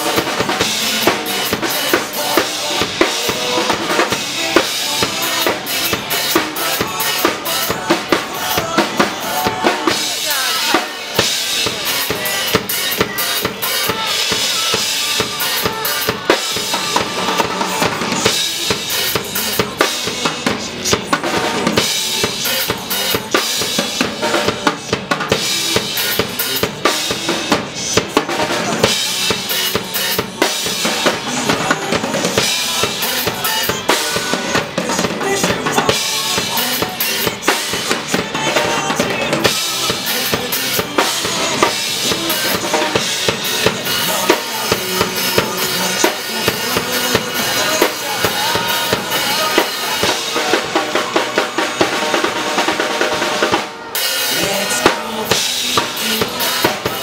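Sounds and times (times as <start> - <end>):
drum kit playing pop-rock beat: 0.0 - 57.0
recorded backing track: 0.0 - 57.0.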